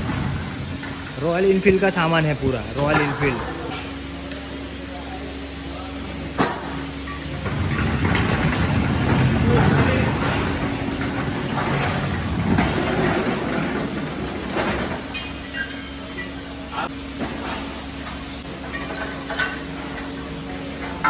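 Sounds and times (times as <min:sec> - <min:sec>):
wheeled rack rumbling and rattling: 0:00.0 - 0:03.6, 0:07.0 - 0:16.3.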